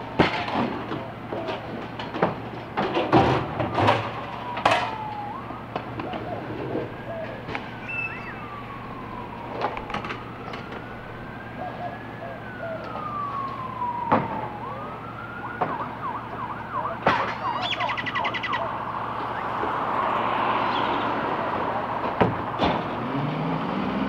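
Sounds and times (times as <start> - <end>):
faint wailing tone: 6.6 - 12.8.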